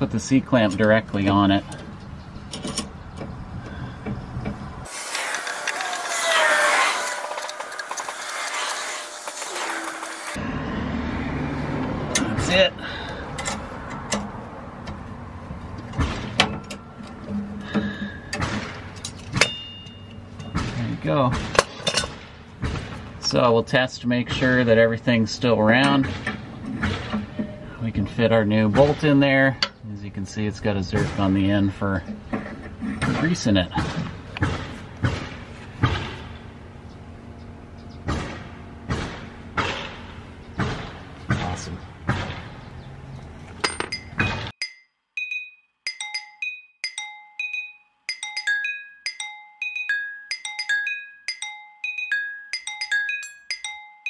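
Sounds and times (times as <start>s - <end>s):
metal knocks and clinks: 15.9s - 20.8s, 43.6s - 54.0s
metal ringing: 15.9s - 21.0s, 25.8s - 28.0s, 43.6s - 54.0s.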